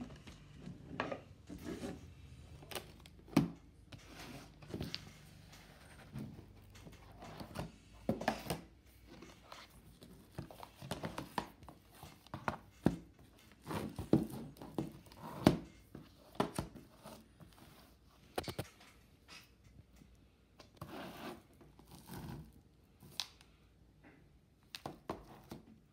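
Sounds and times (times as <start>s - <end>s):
plastic cases handled on a table: 2.6s - 19.0s.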